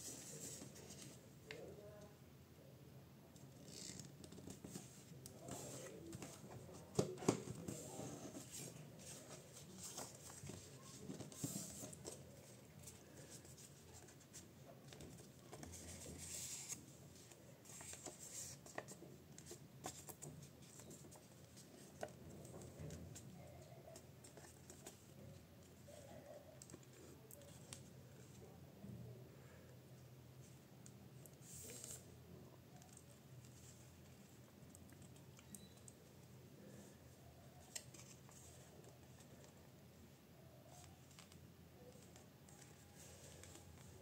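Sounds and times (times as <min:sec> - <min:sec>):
paper rustling and crinkling: 0:04.4 - 0:23.0.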